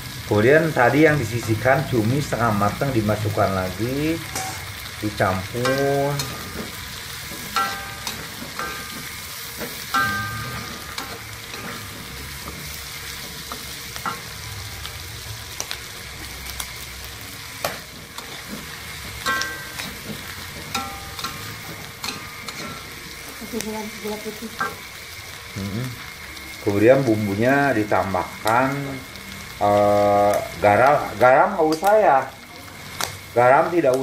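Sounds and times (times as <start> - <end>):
food sizzling in oil: 0.0 - 34.0
metal spatula scraping wok: 5.3 - 24.9.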